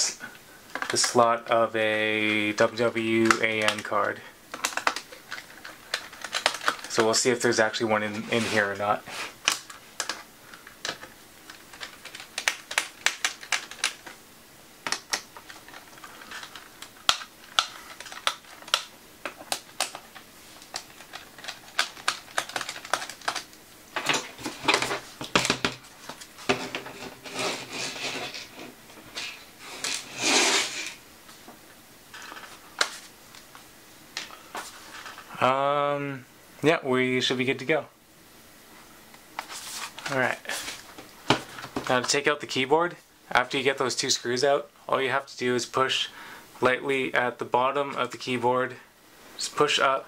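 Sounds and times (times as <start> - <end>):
parts scraping on desk: 8.1 - 9.4, 24.0 - 31.0.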